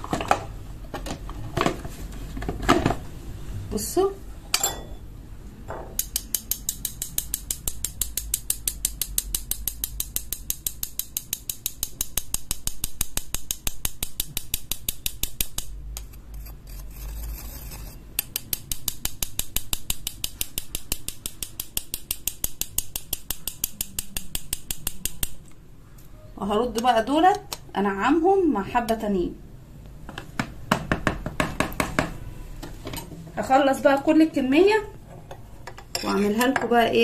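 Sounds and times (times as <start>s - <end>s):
spoon scratching mesh strainer: 16.0s - 19.0s.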